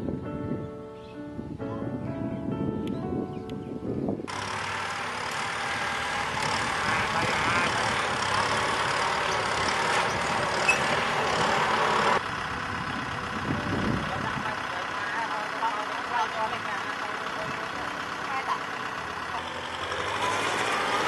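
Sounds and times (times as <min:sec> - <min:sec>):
diesel tractor engines running: 0:04.2 - 0:21.0.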